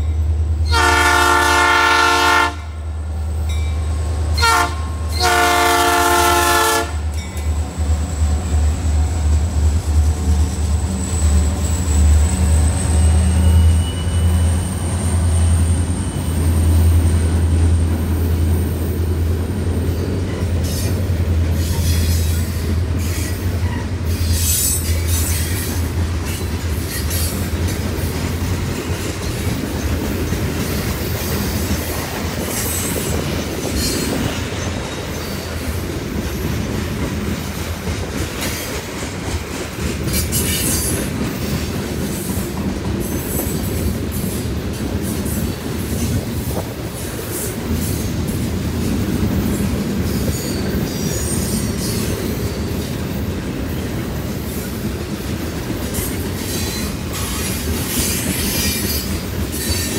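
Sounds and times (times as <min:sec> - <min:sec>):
engine and rail rumble: 0:00.0 - 0:59.9
locomotive horn blasts: 0:00.6 - 0:02.8, 0:04.4 - 0:07.1
train wheel squeals: 0:07.1 - 0:19.0, 0:19.8 - 0:48.5, 0:49.4 - 0:59.9.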